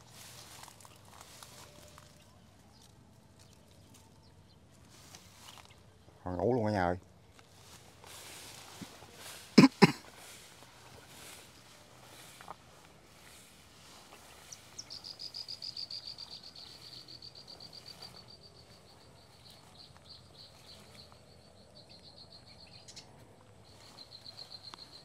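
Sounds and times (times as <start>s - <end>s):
insect trilling: 14.8s - 20.7s.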